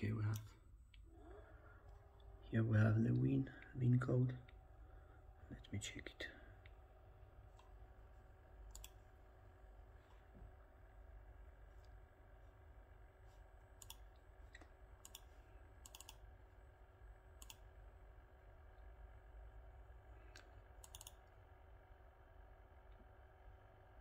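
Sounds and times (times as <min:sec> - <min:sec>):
low steady hum: 0:00.0 - 0:24.0
computer mouse clicks: 0:08.6 - 0:09.0, 0:13.7 - 0:16.3, 0:17.4 - 0:17.7, 0:20.3 - 0:21.4.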